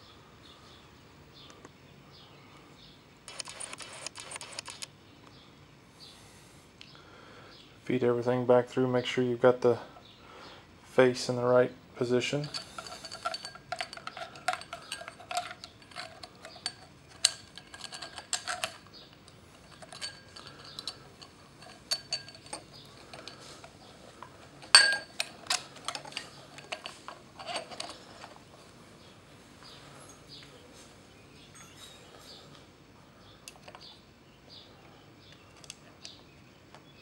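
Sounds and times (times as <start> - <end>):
metal clicks and clinks: 12.3 - 23.8, 24.6 - 28.4.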